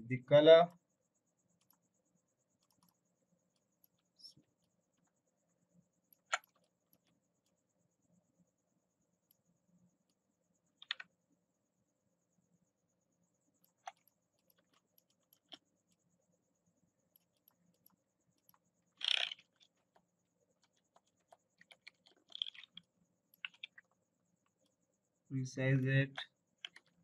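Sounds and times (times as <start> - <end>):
mouse clicks: 2.6 - 4.0, 6.1 - 7.2, 10.8 - 11.2, 13.6 - 16.0, 17.1 - 24.0
computer keyboard keystrokes: 10.8 - 11.1.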